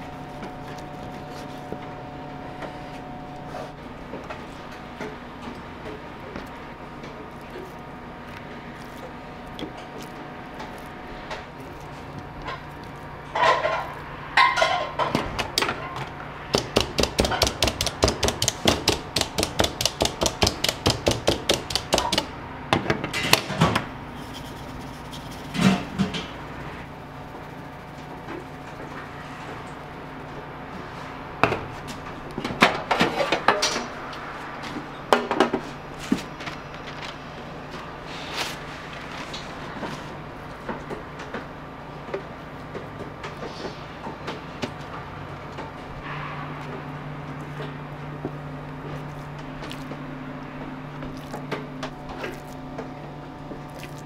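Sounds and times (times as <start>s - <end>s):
meat tenderiser tapping meat: 16.5s - 22.3s.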